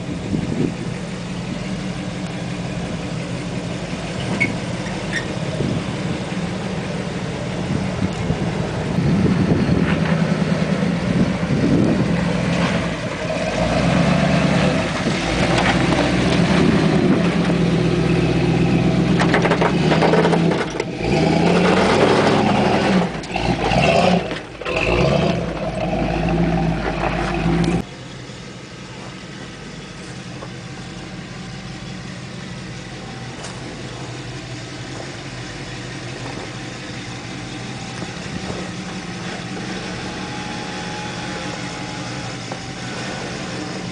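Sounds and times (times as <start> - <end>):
v eight engine revving: 0.0 - 43.9.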